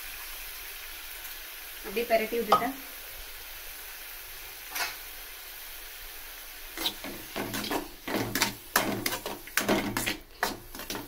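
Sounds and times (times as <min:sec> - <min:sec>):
cabbage sizzling in oil: 0:00.0 - 0:11.0
metal spoon scraping pan: 0:06.8 - 0:11.0.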